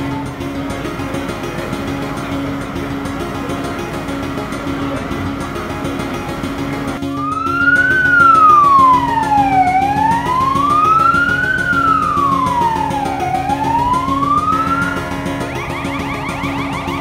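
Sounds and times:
siren wailing: 7.0s - 17.0s.

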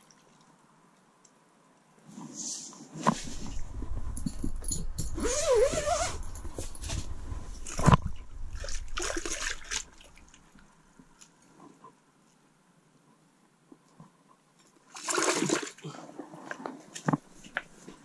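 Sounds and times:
rustling and scraping handling: 2.0s - 8.9s.

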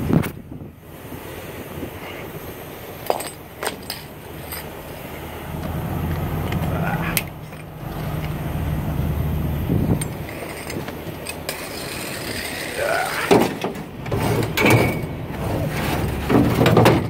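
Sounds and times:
low engine drone: 0.0s - 17.0s
metal clinks and clanks: 3.0s - 4.8s, 10.0s - 12.8s, 13.4s - 15.2s.

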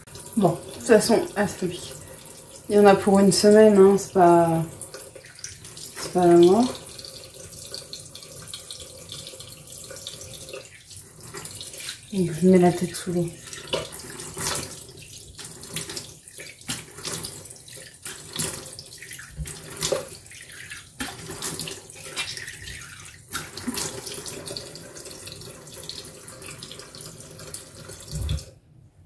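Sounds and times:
sink tap running: 0.0s - 28.5s.

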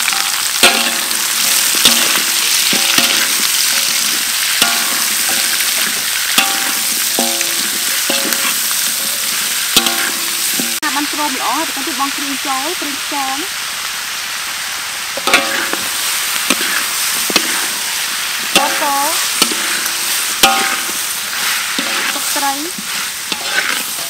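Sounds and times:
wok metallic ring: 0.0s - 10.8s, 15.2s - 15.9s, 16.5s - 24.0s
onions sizzling in a wok: 0.0s - 24.0s
metal spatula scraping a wok: 0.1s - 10.8s, 15.2s - 24.0s.

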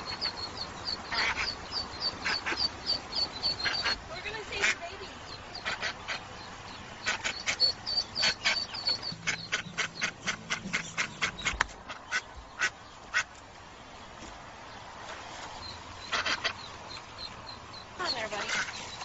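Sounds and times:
duck quacking: 0.0s - 13.3s, 16.0s - 16.8s, 18.0s - 18.8s.

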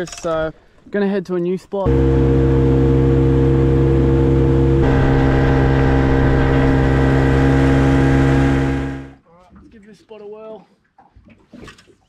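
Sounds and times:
outboard motor running: 1.9s - 9.2s.

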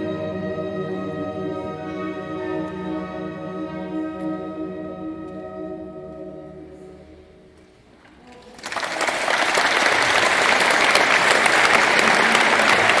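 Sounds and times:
audience applause: 8.3s - 13.0s.

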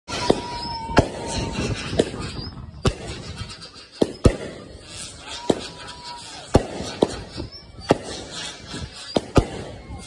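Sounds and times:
thin steady whistle: 0.1s - 2.9s, 7.1s - 10.0s
fireworks bangs: 0.1s - 10.0s
fireworks crackle: 0.1s - 10.0s.

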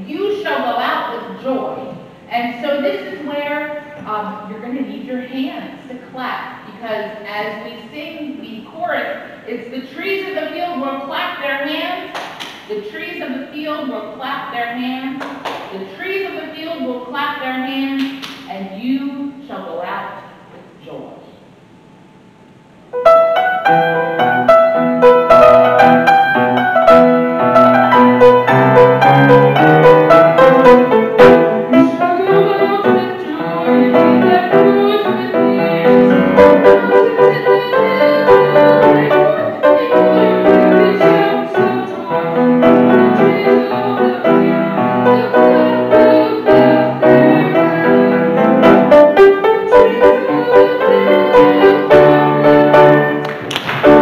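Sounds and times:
piano hymn accompaniment: 22.9s - 54.0s.

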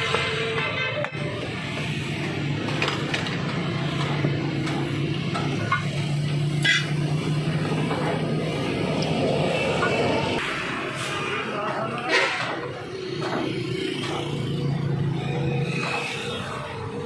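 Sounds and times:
sharp clicks and knocks: 2.6s - 6.1s.

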